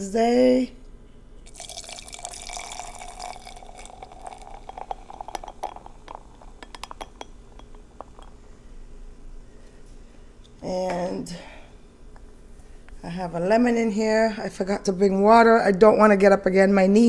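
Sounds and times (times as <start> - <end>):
beer pouring into a glass: 1.4 - 8.3.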